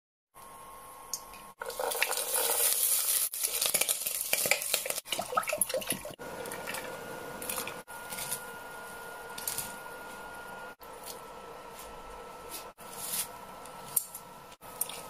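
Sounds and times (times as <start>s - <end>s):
food sizzling in hot oil: 1.6s - 5.8s
water pouring: 1.6s - 7.6s.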